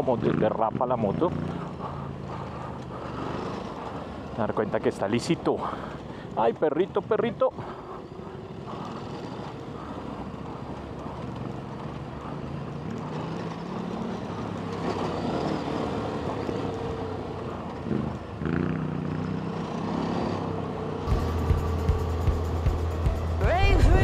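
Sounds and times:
motorcycle engine revving: 0.0 - 5.5, 7.0 - 24.0.

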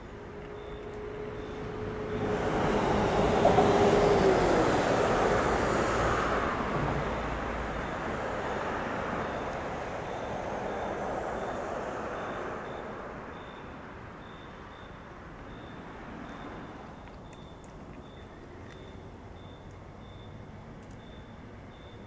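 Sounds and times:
vehicle passing by: 0.4 - 14.2.

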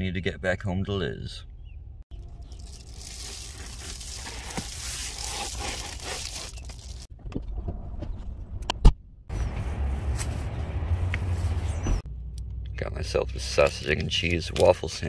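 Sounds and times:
rustling and handling noise: 2.4 - 7.1.

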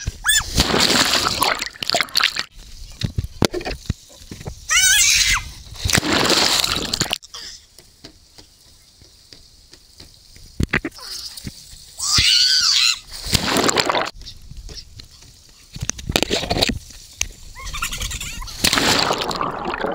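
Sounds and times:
water rushing and splashing: 5.7 - 7.2, 10.8 - 14.2, 18.5 - 19.9.

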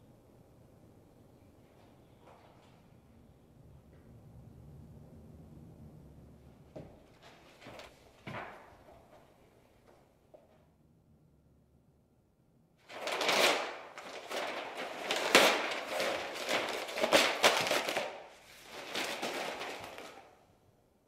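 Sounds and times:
paper tearing and crumpling: 12.9 - 20.3.

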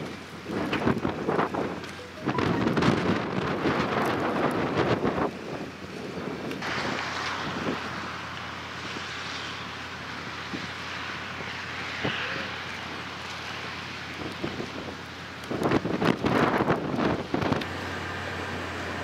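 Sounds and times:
wind buffeting microphone: 0.0 - 9.2, 14.0 - 17.7
steady outdoor hiss: 0.0 - 19.0.

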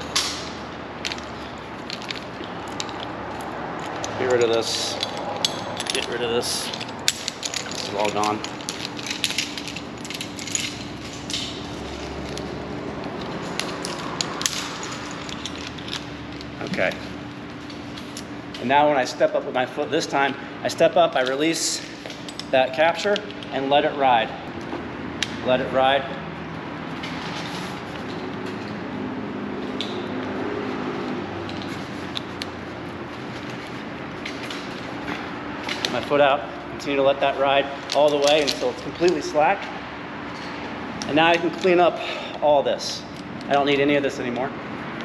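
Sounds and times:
metal carabiners clinking: 0.0 - 18.7, 20.7 - 23.7, 36.9 - 39.6
steady low hum: 0.0 - 45.0
steady rumble: 0.0 - 45.0
carabiner gates clicking: 3.8 - 12.5.

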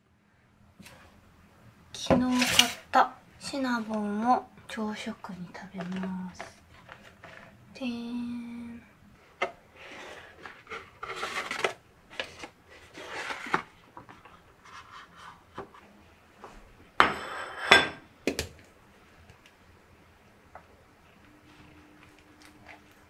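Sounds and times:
kitchenware clattering down: 17.0 - 18.0.

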